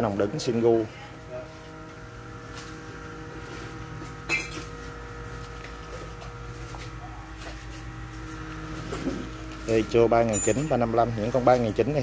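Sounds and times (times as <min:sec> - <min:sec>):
steady low hum: 0:00.0 - 0:12.0
sharp metallic clink: 0:10.3 - 0:10.8.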